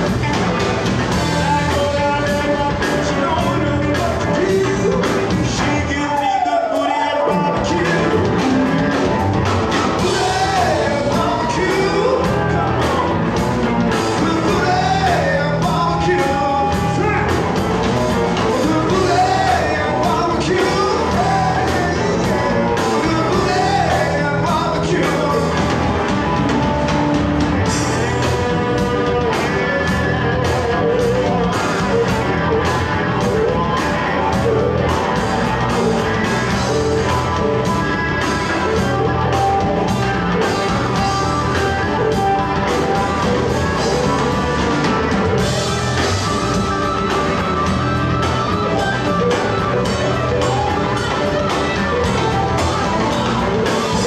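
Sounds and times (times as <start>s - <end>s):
electric bass: 0.0s - 6.4s, 7.2s - 54.0s
drums: 0.0s - 54.0s
electric guitars: 0.0s - 54.0s
lead vocal singing: 1.1s - 8.8s, 9.7s - 26.1s.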